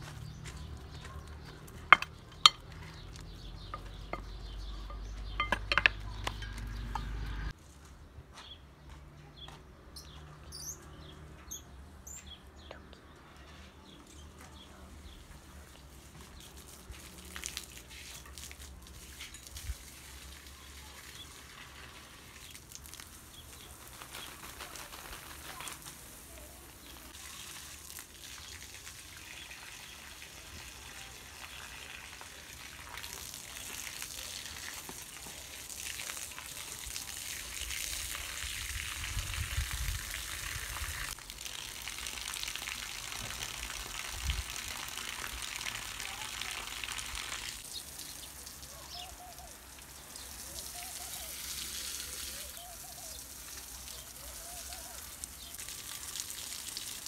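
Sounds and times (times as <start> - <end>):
birds chirping: 0.0 - 7.6, 8.3 - 16.8, 47.6 - 55.7
hose water spraying on soil: 14.9 - 57.0.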